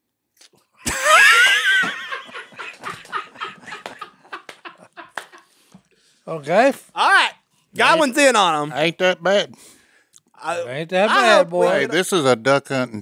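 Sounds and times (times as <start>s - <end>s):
men laughing hard: 0.8s - 5.5s.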